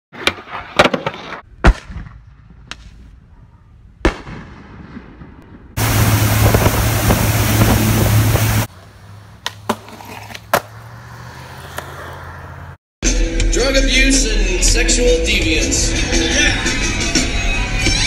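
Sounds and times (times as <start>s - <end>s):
firework bangs and crackle: 0.4s - 3.1s, 4.0s - 8.7s
rushing wind and water: 5.8s - 8.7s
boat engine humming: 5.8s - 9.4s
skateboard clacks: 9.4s - 10.8s.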